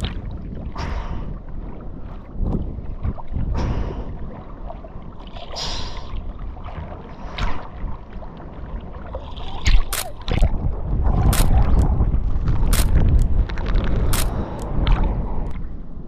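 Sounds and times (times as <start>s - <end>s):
seawater sloshing and splashing: 0.0s - 15.3s
sharp water splashes: 9.1s - 10.6s.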